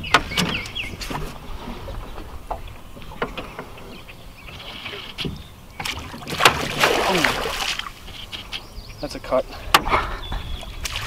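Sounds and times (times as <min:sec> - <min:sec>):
bird chirping: 0:00.0 - 0:01.1, 0:03.2 - 0:06.0, 0:08.0 - 0:10.9
low wind rumble: 0:00.0 - 0:11.0.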